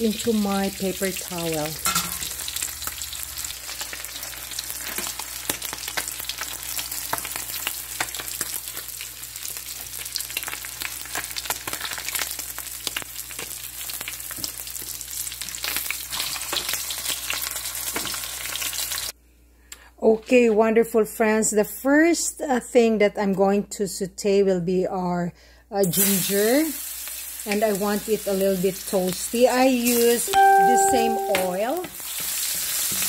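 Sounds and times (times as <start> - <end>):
fish frying in oil: 0.0 - 19.1, 25.9 - 33.0.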